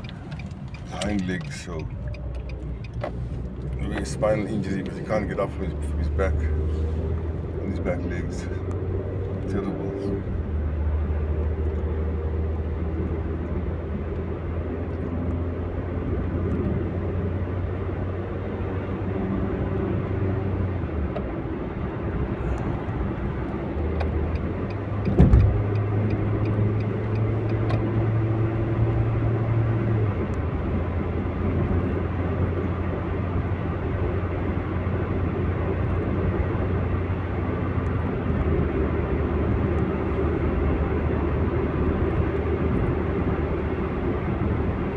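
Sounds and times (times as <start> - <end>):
car engine drone: 0.0 - 44.9
tyre and road noise: 0.0 - 44.9
sharp thump: 25.1 - 25.6.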